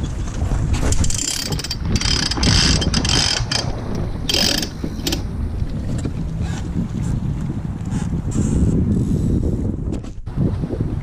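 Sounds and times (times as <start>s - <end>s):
wind rumble on microphone: 0.0s - 11.0s
deck hardware ratcheting clicks: 0.9s - 5.3s.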